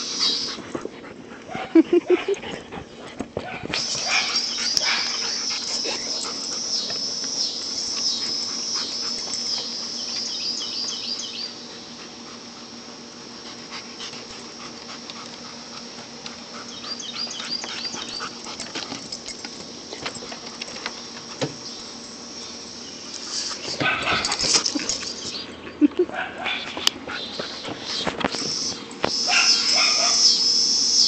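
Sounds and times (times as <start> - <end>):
dogs whining and yipping: 0.1 - 0.7, 1.4 - 11.6, 16.5 - 19.5, 23.6 - 30.4.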